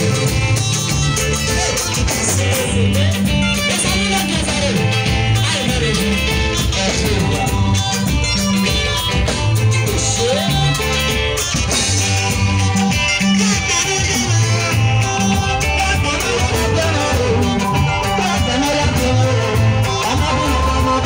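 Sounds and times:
live band playing dance tune: 0.0 - 21.0
sliding guitar notes: 0.0 - 21.0.

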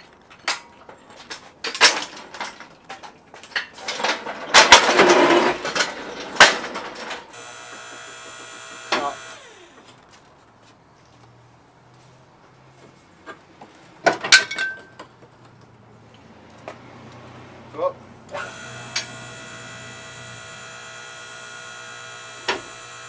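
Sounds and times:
heavy dolly shifted on concrete: 0.0 - 7.4
steady buzzing hum: 7.3 - 9.9, 18.4 - 23.0.

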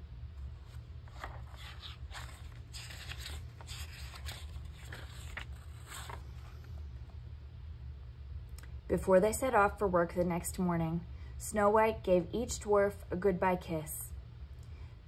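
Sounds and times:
paper page rustling and turning: 0.3 - 6.8.

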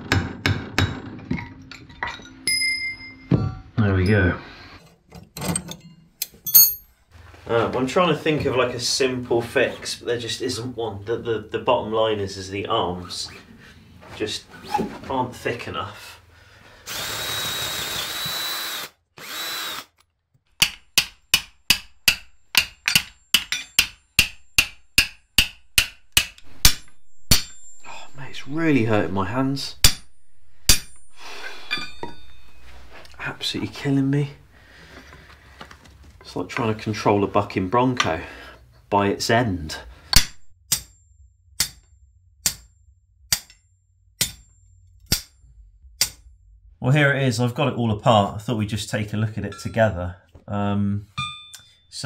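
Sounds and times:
hammer striking steel: 5.8 - 7.0, 20.6 - 34.5, 40.2 - 41.0, 41.6 - 42.7, 43.3 - 43.6, 44.2 - 45.4, 46.0 - 46.3
cordless drill whining: 16.8 - 20.0.

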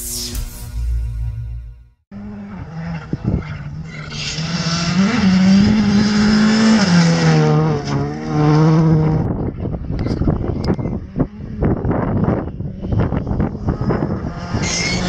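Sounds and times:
rally car engine at full throttle: 2.1 - 15.0.

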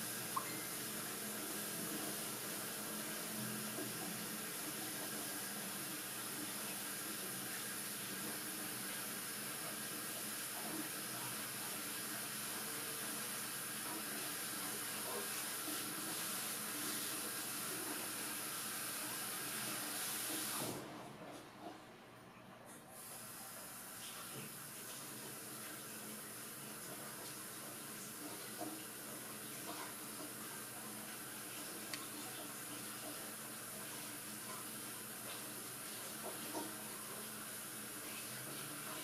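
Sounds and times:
kitchen tap running: 0.0 - 10.6.

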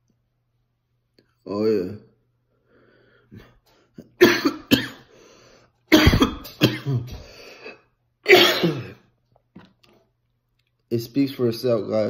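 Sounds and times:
man coughing: 3.4 - 5.1, 5.9 - 9.1.

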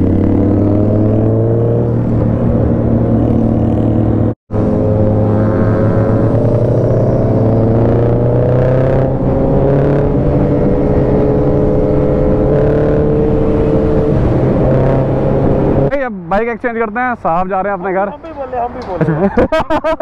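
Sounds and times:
motorcycle engine cruising: 0.0 - 16.0
wind and road noise: 0.0 - 20.0.

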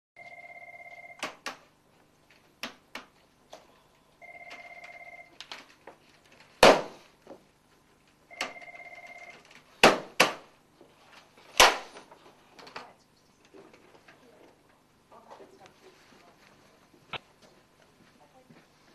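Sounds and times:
telephone ringing electronic trills: 0.2 - 1.2, 4.2 - 5.4, 8.3 - 9.4.

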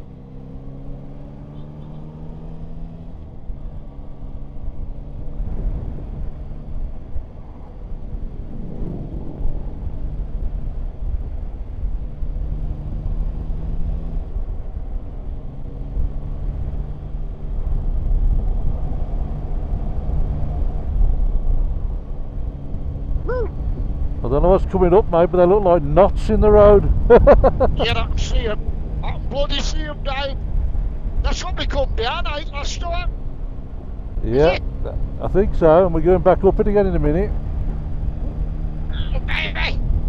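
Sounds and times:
wind rumble on microphone: 3.2 - 24.9, 30.1 - 40.0.

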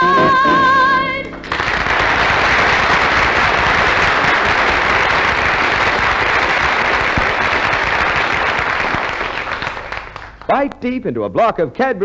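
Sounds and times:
audience applauding: 1.4 - 10.8.

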